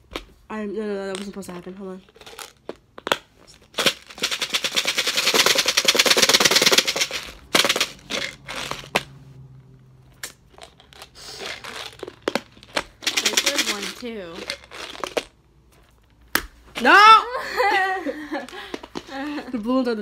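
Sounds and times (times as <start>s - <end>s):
jelly beans rattling in plastic container: 1.1s - 9.1s, 10.2s - 16.2s, 18.3s - 19.6s.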